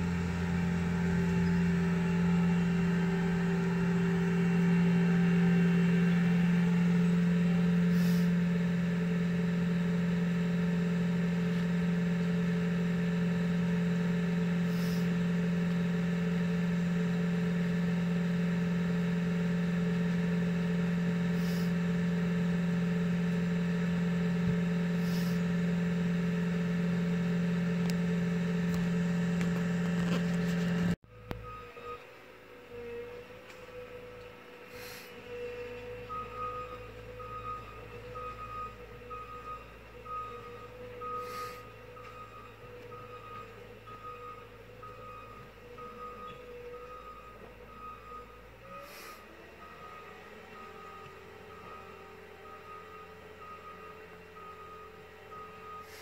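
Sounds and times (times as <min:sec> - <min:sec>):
car engine idling from inside: 0:00.0 - 0:32.0, 0:33.0 - 0:56.0
faint steady tones: 0:00.0 - 0:56.0.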